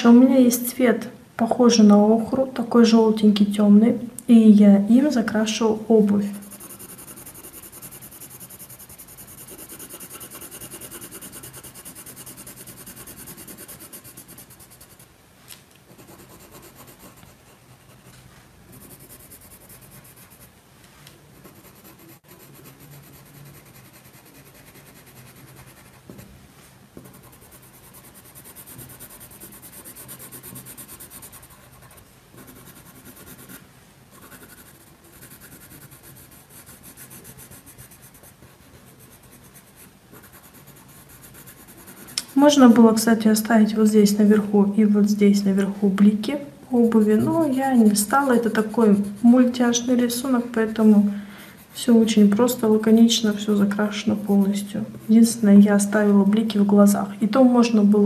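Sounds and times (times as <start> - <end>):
pencil scratching on paper: 6.2 - 15.1, 15.9 - 20.5, 21.4 - 26.2, 27.0 - 43.0, 46.8 - 50.9, 51.6 - 55.5.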